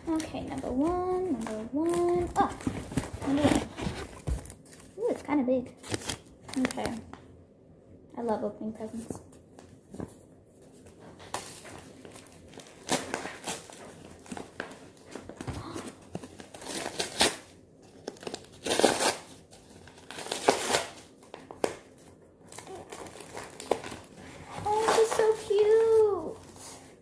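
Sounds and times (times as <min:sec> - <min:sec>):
tissue paper crinkling and tearing: 0:00.0 - 0:05.2, 0:11.2 - 0:26.9.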